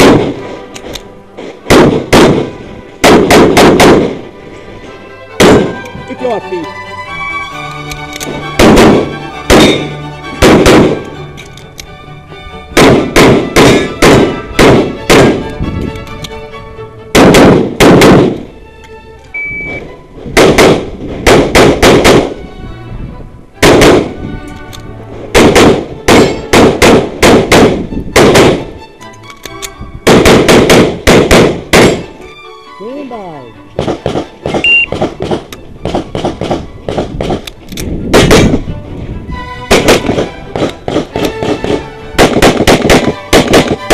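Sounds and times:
pistol shots: 0.0s - 0.4s, 1.7s - 4.2s, 5.4s - 5.8s, 8.2s - 11.1s, 12.8s - 15.5s, 17.1s - 18.4s, 20.4s - 22.4s, 23.6s - 24.1s, 25.3s - 28.7s, 30.1s - 32.1s, 33.8s - 37.5s, 38.1s - 38.6s, 39.7s - 43.9s
background music: 0.0s - 43.9s.

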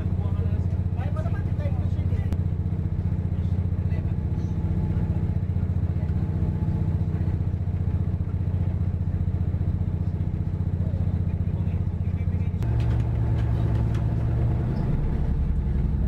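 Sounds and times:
train rumbling on rails: 11.8s - 16.0s.

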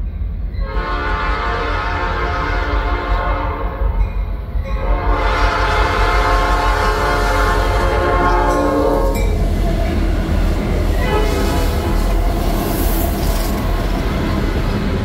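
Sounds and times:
locomotive engine rumble: 0.0s - 15.0s
rail noise: 0.0s - 15.0s
train air horn chord: 0.6s - 4.0s, 4.8s - 9.2s, 11.0s - 12.1s.

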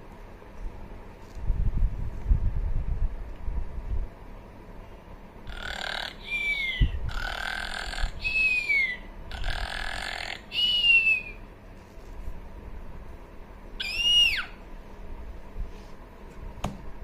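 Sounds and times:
girl screaming: 13.8s - 14.6s.

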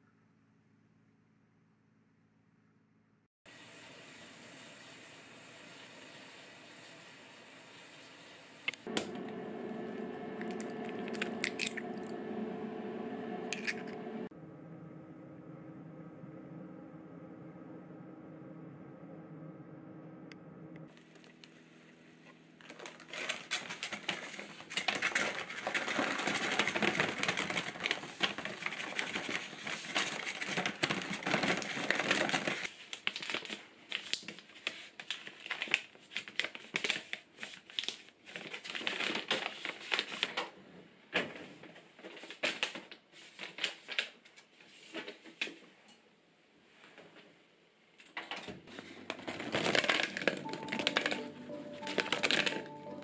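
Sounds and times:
sharp crinkles and clicks: 10.4s - 12.2s, 22.2s - 40.5s, 48.0s - 53.0s
crackly rustling and crinkling: 20.9s - 46.0s, 48.0s - 53.0s.

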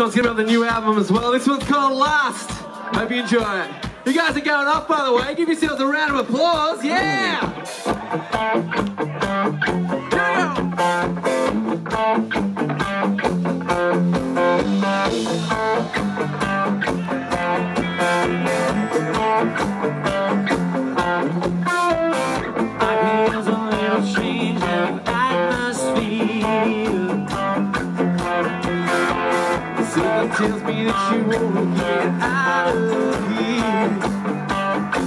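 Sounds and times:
country rock band playing: 0.0s - 35.0s
acoustic guitar strumming: 7.0s - 35.0s
electric bass: 7.0s - 35.0s.

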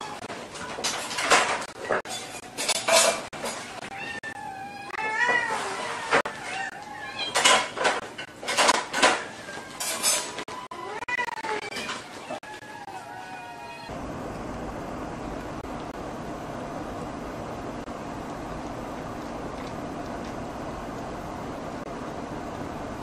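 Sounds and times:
tableware clinking and scraping: 0.5s - 3.8s, 7.2s - 10.5s
kittens mewing: 9.2s - 14.0s.

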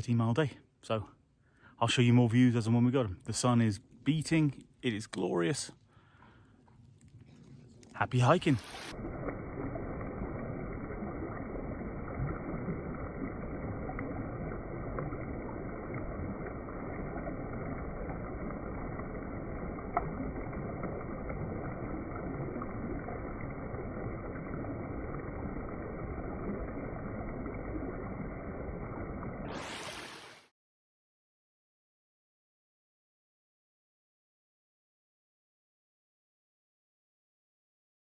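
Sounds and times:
stream splashing over rocks: 8.0s - 30.5s.

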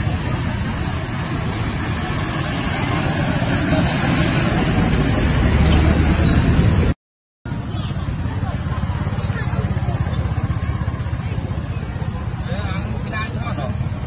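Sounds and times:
wind buffeting microphone: 0.0s - 6.9s.

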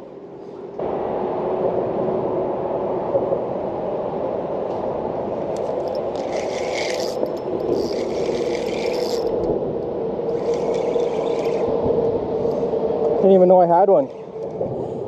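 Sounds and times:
steady rushing noise: 0.0s - 15.0s
fishing reel cranking: 5.6s - 9.6s, 10.3s - 11.7s.

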